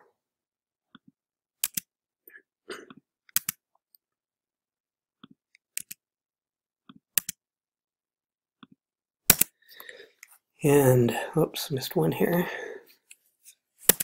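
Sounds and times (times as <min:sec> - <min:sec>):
computer mouse clicks: 0:01.6 - 0:01.9, 0:03.3 - 0:03.6, 0:05.7 - 0:06.0, 0:06.9 - 0:07.4.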